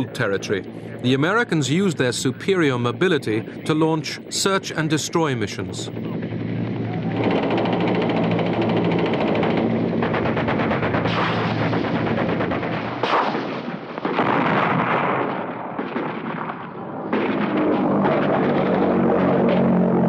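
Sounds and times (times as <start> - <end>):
helicopter drone: 0.0 - 14.5, 16.5 - 20.0
rapid machine-gun fire: 7.2 - 20.0.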